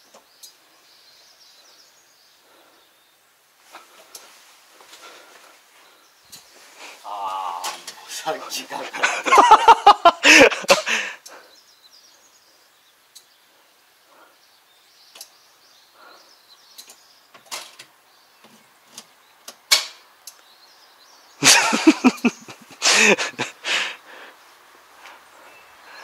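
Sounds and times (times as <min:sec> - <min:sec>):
person's voice: 0:07.0 - 0:09.4
small clicks and knocks: 0:15.1 - 0:15.4, 0:16.8 - 0:20.4.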